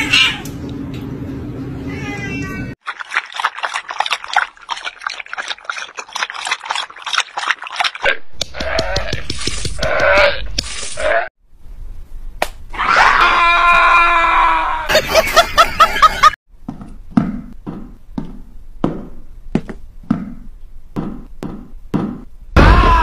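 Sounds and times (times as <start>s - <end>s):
dog screaming: 12.8s - 14.9s.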